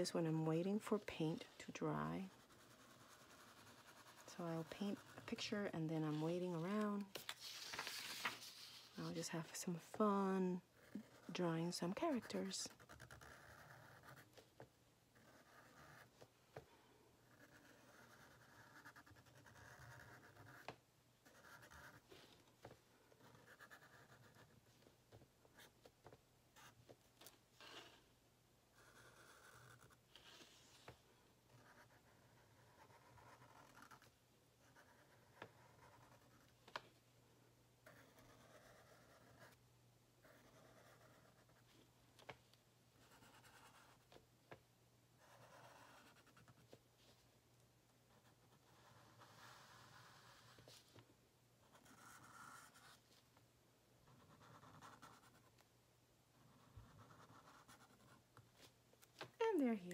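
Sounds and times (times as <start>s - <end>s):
marker scratching on paper: 0.5s - 14.6s, 15.2s - 16.3s, 17.3s - 22.4s, 23.2s - 24.9s, 28.8s - 36.5s, 37.8s - 39.6s, 40.2s - 41.7s, 43.0s - 44.1s, 45.2s - 47.2s, 48.1s - 50.9s, 51.7s - 53.2s, 54.0s - 55.6s, 56.4s - 58.7s.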